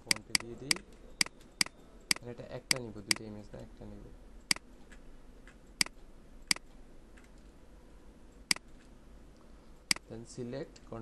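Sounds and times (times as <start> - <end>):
computer mouse clicks: 0.0 - 3.2, 4.4 - 7.5, 9.9 - 10.1
faint steady hum: 0.0 - 11.0.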